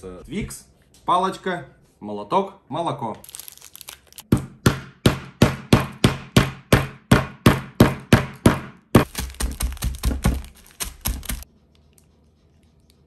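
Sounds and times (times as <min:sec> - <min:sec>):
hammer striking wrapped bar: 0:04.3 - 0:11.4.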